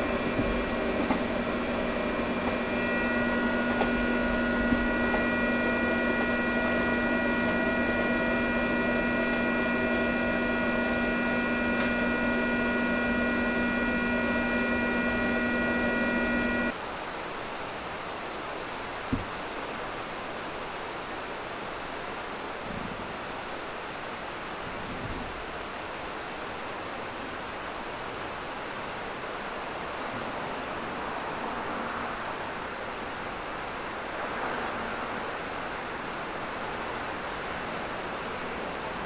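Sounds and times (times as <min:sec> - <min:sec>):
steady electrical hum: 0:00.0 - 0:16.8.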